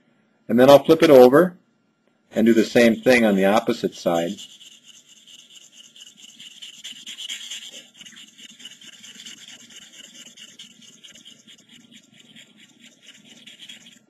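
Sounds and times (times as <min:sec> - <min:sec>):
knife scraping on sharpening stone: 0:03.8 - 0:14.0.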